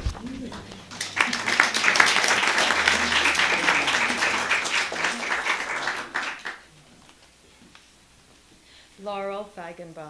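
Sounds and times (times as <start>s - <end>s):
audience applauding: 0.4s - 6.7s.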